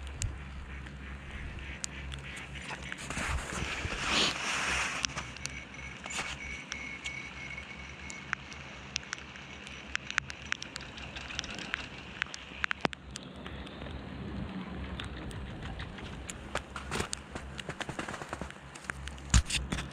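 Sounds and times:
wind rumbling on microphone: 0.0s - 5.8s, 9.8s - 19.9s
sharp clicks and crackles: 0.0s - 19.9s.

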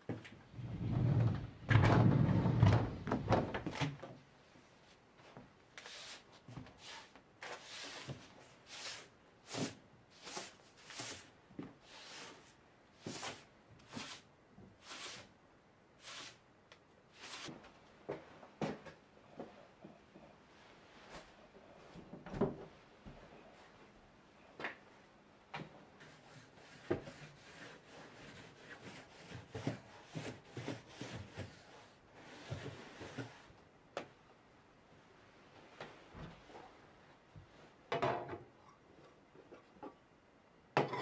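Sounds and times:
sliding door rumbling on track: 0.6s - 3.0s
broom sweeping wooden floor: 5.8s - 15.3s, 16.0s - 16.4s, 17.1s - 17.7s, 26.0s - 33.6s.

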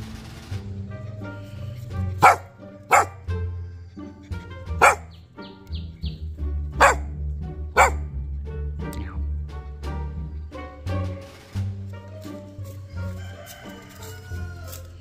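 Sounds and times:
background music: 0.0s - 15.0s
young dog barking: 2.2s - 3.3s, 4.8s - 5.2s, 6.8s - 7.2s, 7.8s - 8.1s.

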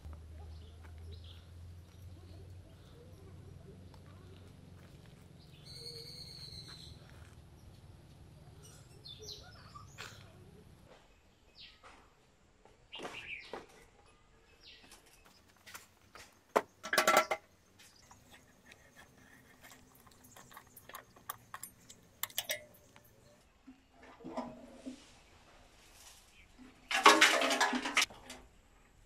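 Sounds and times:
bird chirping: 0.4s - 11.9s
metal clicks and knocks: 16.6s - 23.4s
loud metal clatter: 26.9s - 28.1s.

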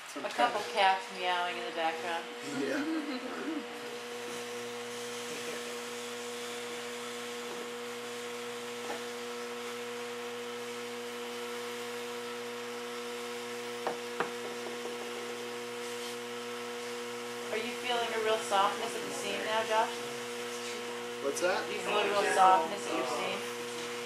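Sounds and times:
electric hum: 0.2s - 24.0s.

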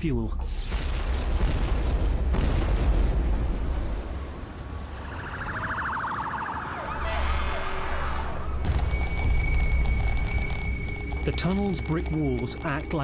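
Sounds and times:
rumbling blast of burning fuel: 0.6s - 4.1s, 8.5s - 11.3s
emergency vehicle sirens: 4.4s - 13.0s.

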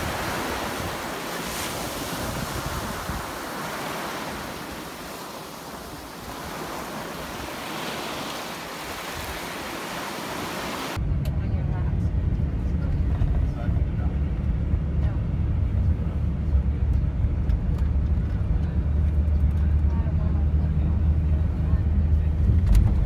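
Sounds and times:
waves washing over pebbles: 0.0s - 11.0s
wind buffeting microphone: 0.0s - 11.0s.

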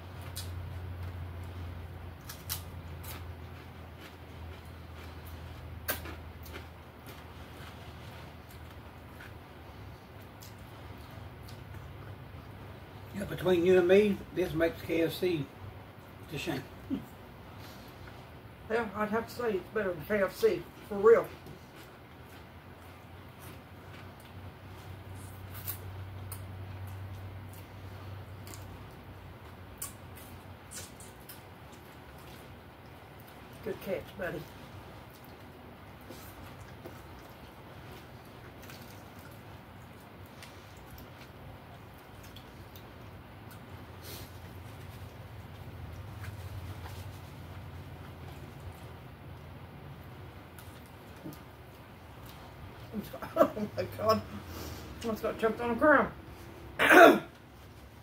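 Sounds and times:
steady low hum: 0.0s - 58.0s
chewing and lip-smacking: 0.1s - 12.7s, 21.3s - 33.6s, 34.4s - 53.2s
wet lip smacks and clicks: 29.8s - 32.1s.

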